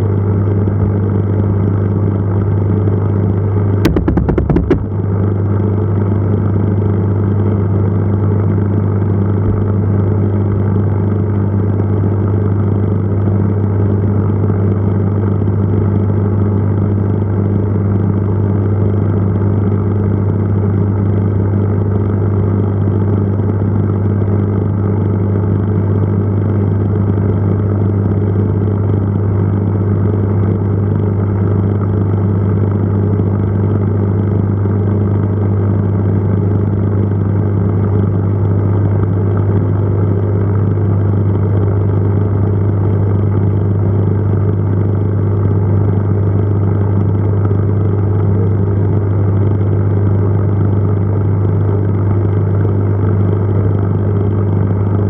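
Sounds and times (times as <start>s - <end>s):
aquarium pump humming: 3.9s - 5.5s.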